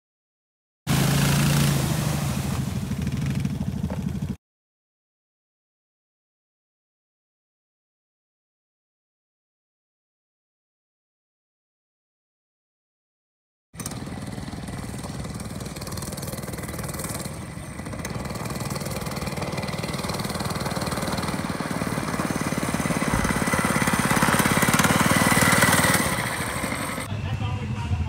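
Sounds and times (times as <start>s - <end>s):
mini bike engine passing: 0.9s - 4.4s, 13.8s - 28.0s.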